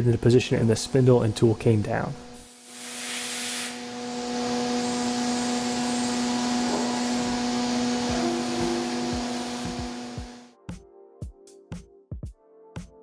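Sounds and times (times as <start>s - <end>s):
mill spindle whine: 0.8s - 10.5s
coolant spray hissing: 2.4s - 10.4s.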